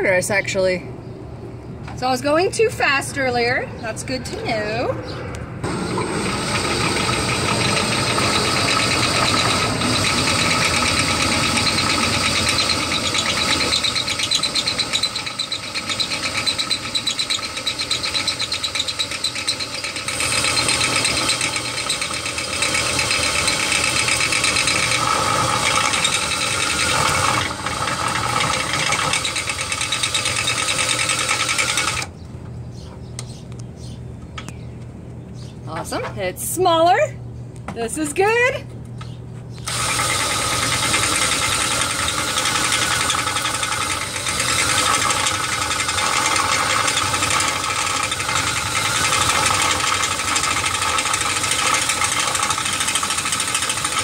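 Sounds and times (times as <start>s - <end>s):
drill motor whining: 5.6s - 32.1s, 39.6s - 54.0s
hacksaw blade grating on bolt: 6.9s - 27.5s.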